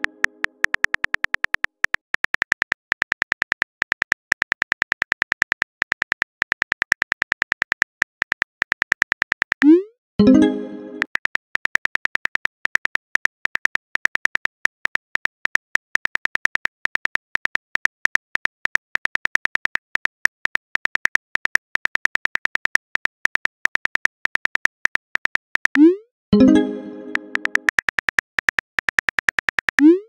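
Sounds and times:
keyboard typing clicks: 0.0s - 30.0s
message sent chime: 10.2s - 11.1s, 26.4s - 27.7s.

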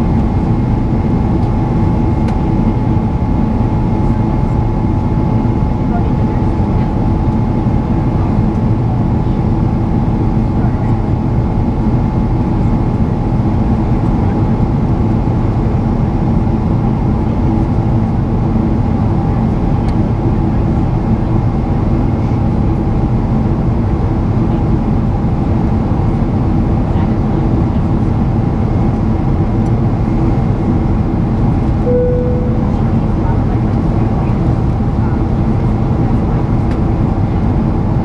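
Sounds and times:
jet engine drone: 0.0s - 38.0s
faint steady tones: 31.8s - 33.4s.

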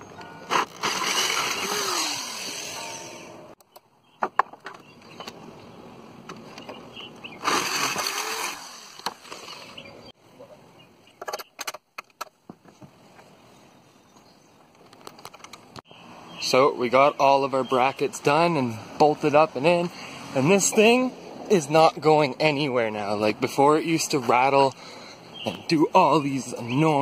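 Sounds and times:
power drill boring through steel: 0.5s - 3.4s, 7.4s - 9.6s.

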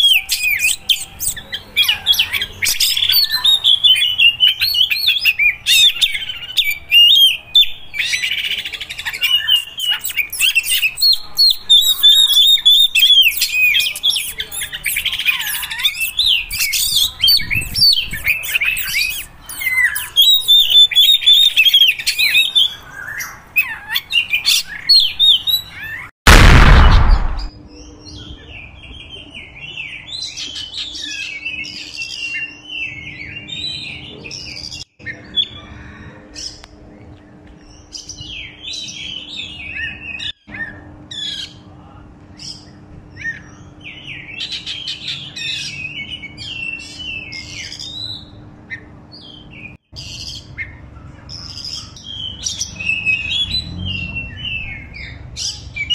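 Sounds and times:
bird singing: 0.0s - 26.1s, 42.4s - 55.9s
loud burst of noise: 26.3s - 27.5s.

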